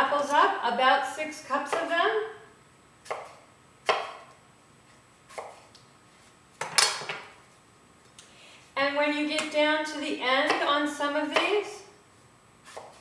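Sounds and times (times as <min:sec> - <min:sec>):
knife slicing apple on wooden board: 0:03.0 - 0:04.3, 0:05.3 - 0:07.3, 0:12.6 - 0:13.0.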